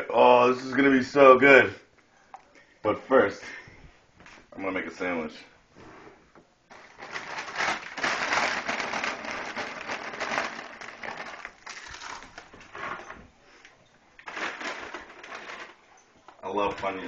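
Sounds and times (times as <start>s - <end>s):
snack bag crinkling: 6.7s - 12.6s, 14.2s - 15.8s.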